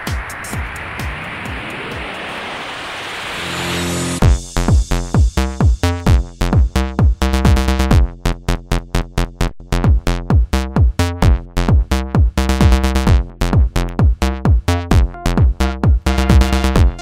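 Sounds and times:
drum machine beat: 0.0s - 2.5s, 4.2s - 17.0s
sustained synthesizer chords: 3.2s - 4.6s.

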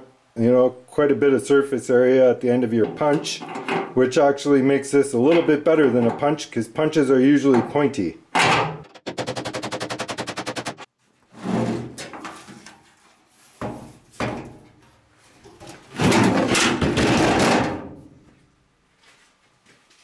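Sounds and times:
metal scraping and clattering: 2.8s - 4.0s.

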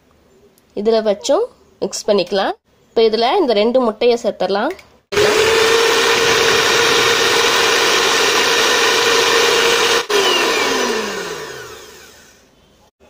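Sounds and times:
electric hand mixer whirring: 5.1s - 12.5s.

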